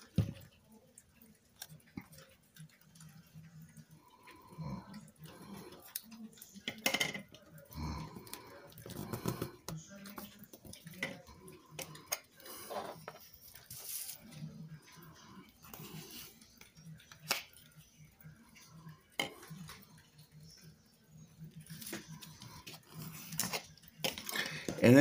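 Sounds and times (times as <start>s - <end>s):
paper rustling: 13.7s - 14.2s.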